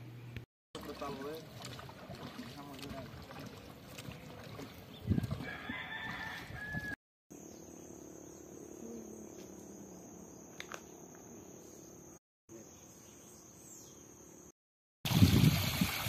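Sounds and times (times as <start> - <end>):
rooster crowing: 5.4 - 7.0.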